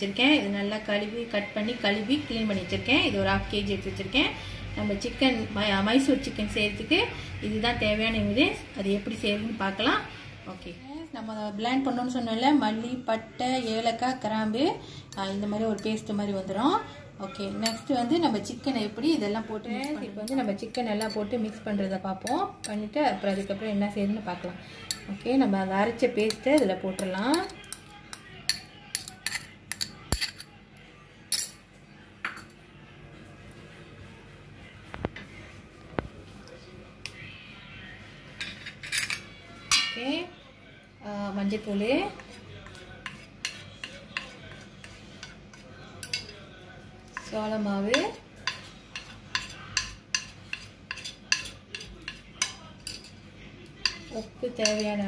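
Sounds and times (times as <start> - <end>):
spoon clinking against plate: 17.4 - 18.0, 24.8 - 25.2, 26.2 - 30.6, 42.6 - 46.4, 47.9 - 53.2, 53.8 - 55.0.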